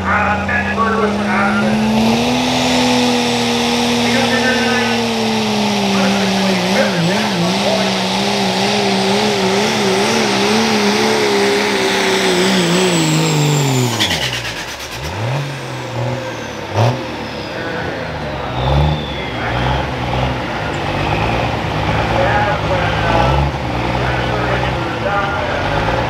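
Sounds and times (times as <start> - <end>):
diesel truck engine at full throttle: 0.0 - 26.0
turbo whistle: 18.4 - 19.9.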